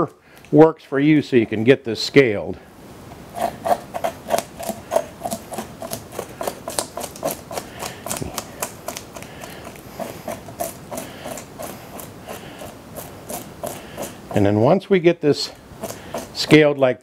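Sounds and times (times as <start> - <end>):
knife scraping fish scales: 3.3 - 14.8, 15.4 - 16.8
scales clicking on cutting board: 4.0 - 14.2.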